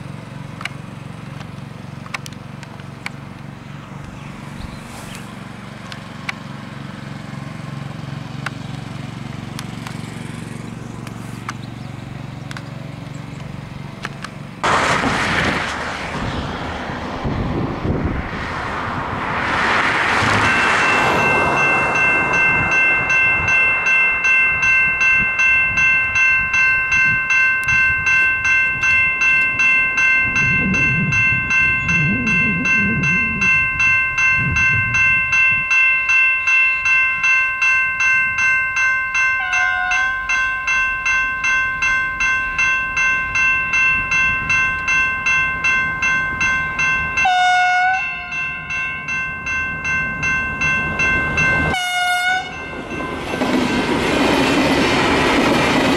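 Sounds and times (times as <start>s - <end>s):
low rumble: 14.6s - 23.6s, 28.8s - 35.8s
level crossing bells ringing: 20.4s - 55.8s
train horn blast: 39.4s - 40.3s, 47.2s - 48.4s, 51.7s - 52.6s.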